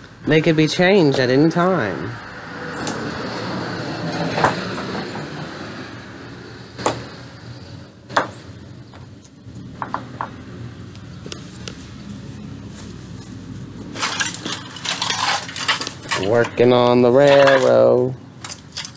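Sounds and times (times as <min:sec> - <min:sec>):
knocks and scrapes of stones: 0:13.8 - 0:16.6.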